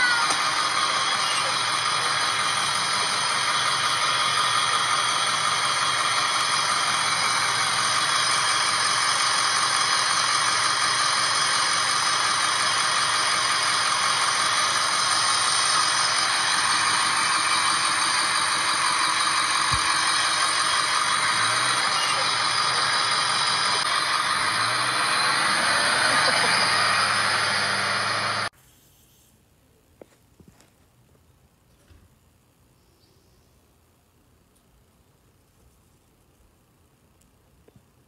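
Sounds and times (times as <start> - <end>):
bus rattling: 0.0 - 28.5.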